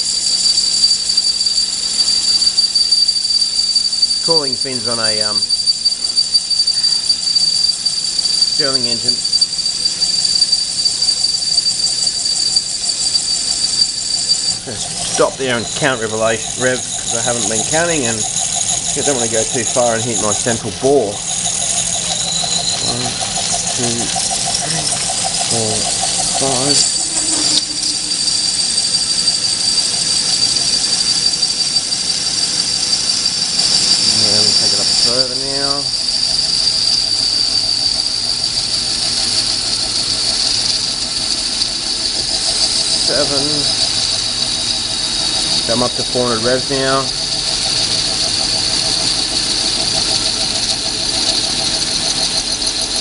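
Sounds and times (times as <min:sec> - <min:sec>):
lathe cutting whine: 0:00.0 - 0:53.0
lathe running noise: 0:00.0 - 0:53.0.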